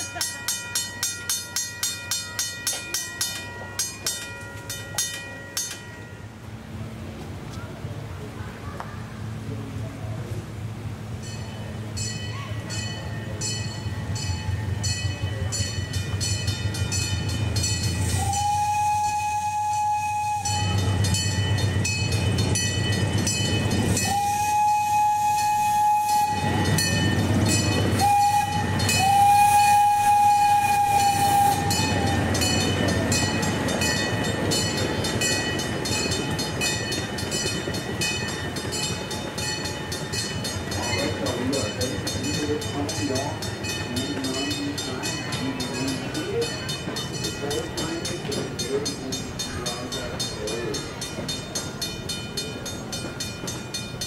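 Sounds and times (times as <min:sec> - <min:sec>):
mechanical crossing bell ringing: 0:00.0 - 0:06.5, 0:20.5 - 0:24.2, 0:26.2 - 0:29.3, 0:31.1 - 0:54.0
train running rumble: 0:00.0 - 0:54.0
train whistle blowing: 0:18.0 - 0:21.4, 0:23.8 - 0:32.6.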